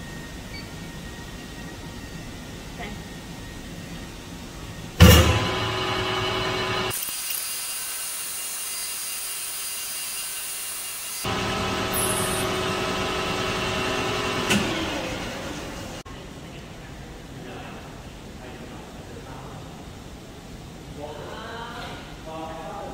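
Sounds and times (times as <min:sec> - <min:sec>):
metal lathe whining: 0:05.0 - 0:16.0.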